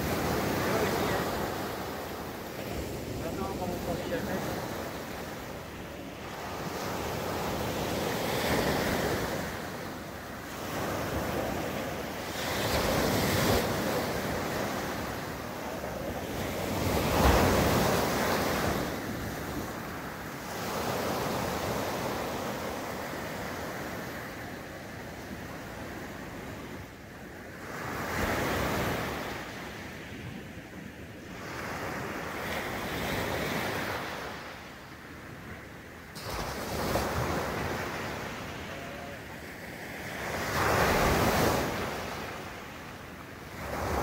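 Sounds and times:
sea waves breaking: 0:00.0 - 0:24.6, 0:36.0 - 0:44.0.

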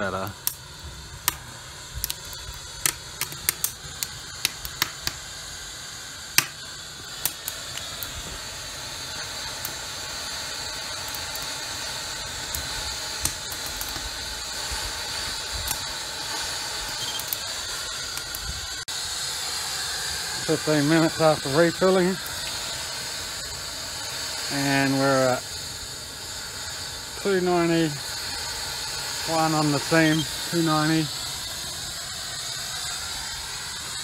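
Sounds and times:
steam hissing from boiler: 0:00.0 - 0:34.0
wood fire crackling: 0:00.0 - 0:34.0
sharp pops of fire: 0:00.1 - 0:18.7.

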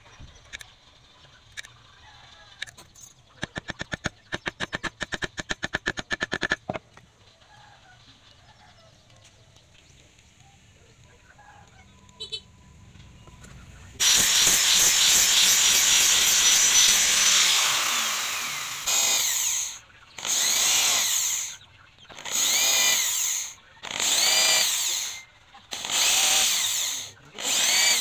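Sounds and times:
electric drill working wood: 0:14.0 - 0:28.0.

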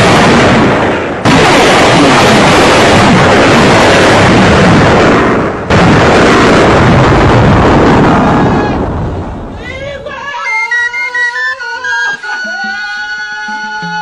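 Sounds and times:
booming crash: 0:00.0 - 0:09.8.

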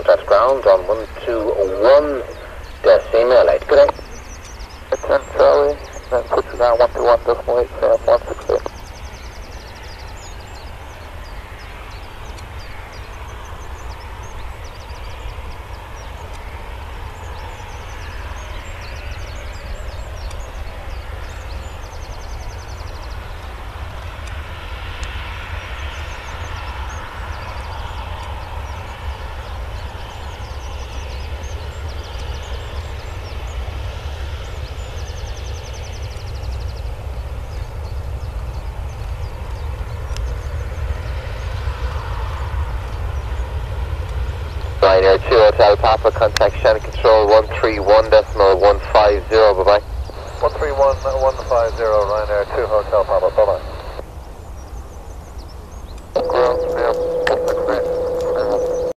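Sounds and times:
jet engines roaring: 0:00.0 - 0:54.5, 0:56.0 - 0:58.9.

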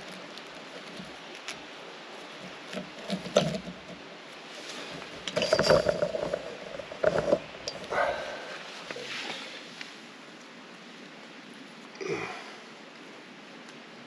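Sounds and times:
rope rubbing and knocking: 0:00.0 - 0:10.0
creek rushing: 0:00.0 - 0:14.0.

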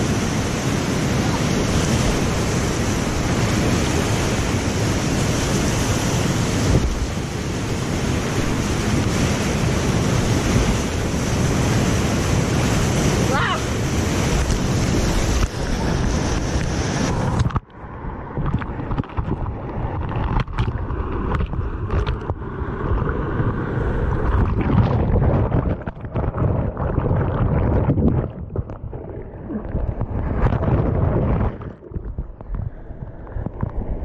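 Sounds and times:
whitewater rushing: 0:00.0 - 0:17.5
muffled underwater churning water: 0:00.0 - 0:34.0
sharp knocks underwater: 0:18.4 - 0:23.6, 0:24.2 - 0:34.0.

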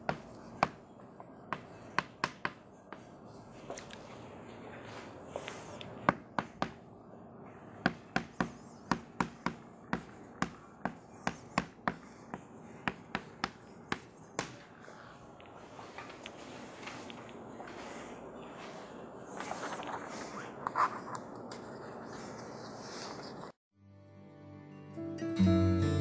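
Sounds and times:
chalk tapping on a blackboard: 0:00.0 - 0:00.8, 0:01.4 - 0:03.1, 0:05.5 - 0:06.8, 0:07.8 - 0:14.7.

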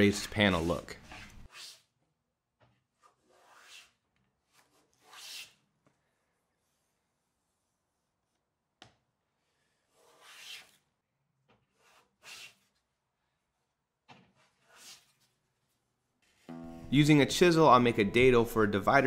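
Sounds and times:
hand plane strokes on wood: 0:03.0 - 0:05.6, 0:09.8 - 0:10.9.

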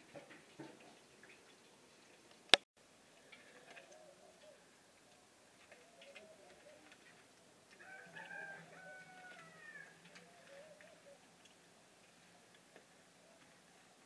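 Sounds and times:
faint rooster crowing: 0:07.7 - 0:11.2.

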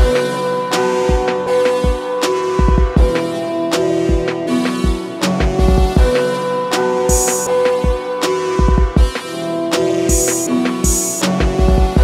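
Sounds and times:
sharp percussion hits: 0:00.0 - 0:12.0.

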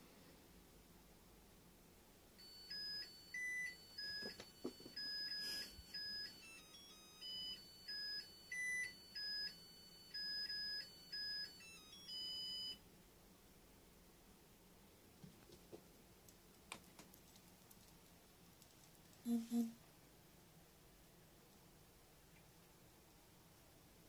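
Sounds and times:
electronic beeping melody: 0:02.4 - 0:12.8.

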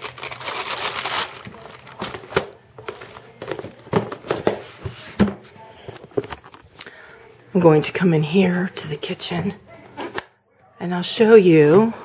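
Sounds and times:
wrapping crinkling: 0:00.0 - 0:03.4.

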